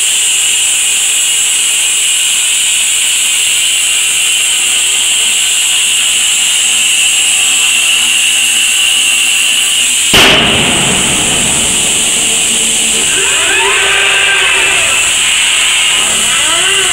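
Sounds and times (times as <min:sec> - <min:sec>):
plasma torch cutting steel: 0:00.0 - 0:16.9
loud burst: 0:06.1 - 0:16.9
low rush: 0:10.1 - 0:16.9.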